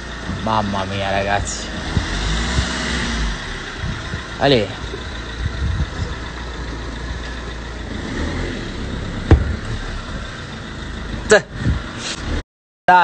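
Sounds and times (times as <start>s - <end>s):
car engine humming: 0.0s - 12.4s
sharp knock: 9.3s - 9.8s.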